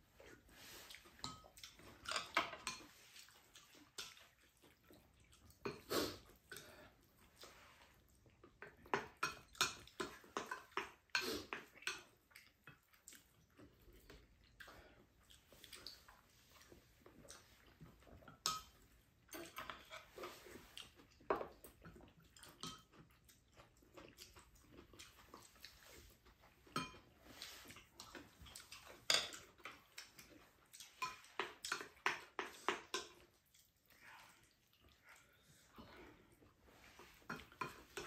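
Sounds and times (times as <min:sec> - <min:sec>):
chewing: 0:00.1 - 0:38.0
utensils clinking on bowls: 0:18.4 - 0:20.3, 0:26.7 - 0:27.6.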